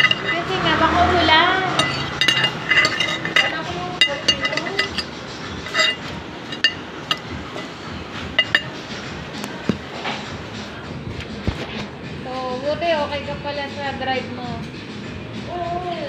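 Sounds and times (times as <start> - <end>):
cutlery clinking against plate: 0.0 - 0.5, 1.7 - 10.3.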